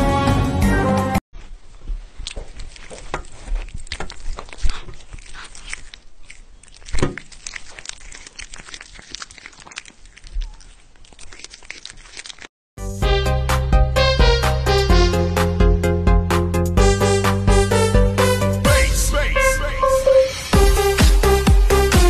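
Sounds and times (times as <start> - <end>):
cats chewing candy: 1.4 - 12.5
candy snapping: 2.2 - 12.5
music with a beat: 20.6 - 22.0.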